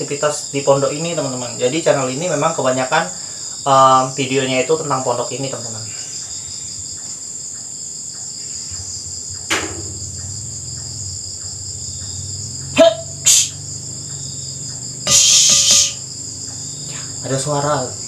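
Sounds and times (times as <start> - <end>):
crickets chirring: 0.0 - 18.0
sharp click: 9.4 - 10.0.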